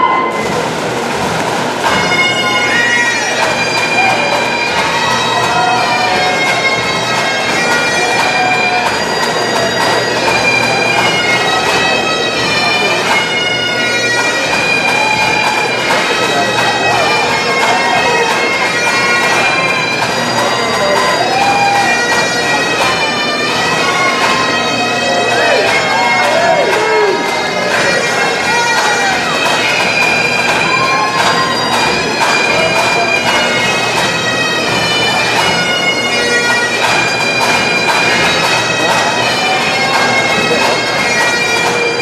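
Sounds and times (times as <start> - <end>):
bagpipes playing a tune: 0.0 - 42.0.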